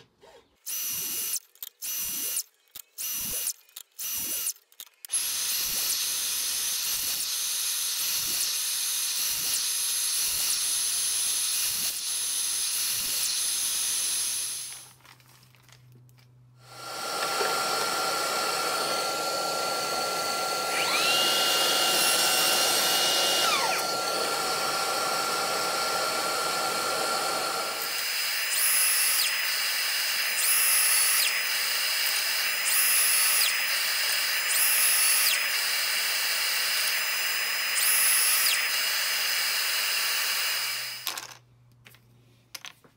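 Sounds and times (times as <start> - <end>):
mitre saw cutting wood: 16.7 - 41.0.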